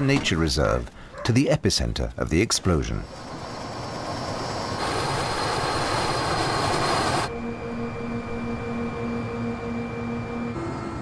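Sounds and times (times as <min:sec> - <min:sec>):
helicopter turbine and rotor noise: 0:02.6 - 0:11.0
hum with pulsing tone: 0:03.6 - 0:11.0.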